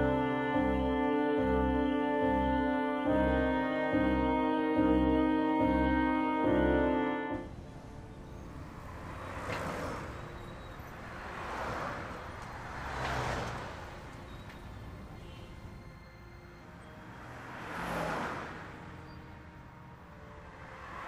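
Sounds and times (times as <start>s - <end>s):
brass music: 0.0s - 9.2s
road traffic passing: 0.0s - 21.0s.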